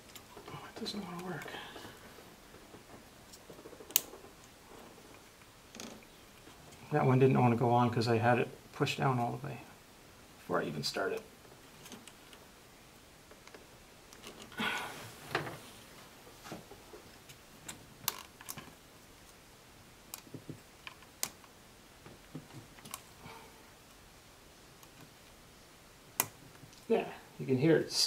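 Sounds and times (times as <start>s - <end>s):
faint handling noise: 13.2s - 19.4s.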